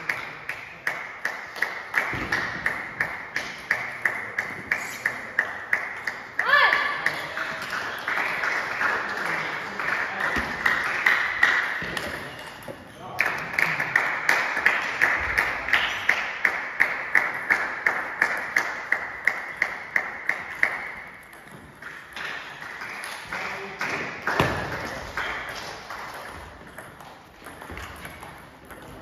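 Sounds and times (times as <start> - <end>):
table tennis balls clicking: 18.3 - 23.3, 24.4 - 29.0.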